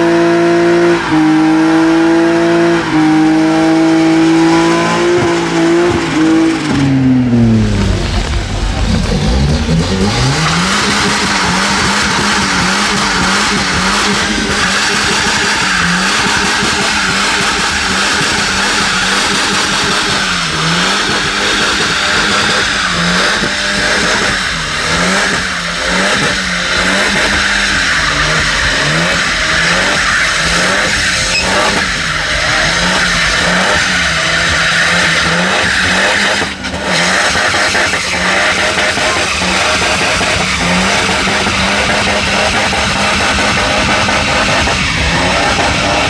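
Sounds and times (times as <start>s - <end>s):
car engine revving: 0.0s - 46.0s.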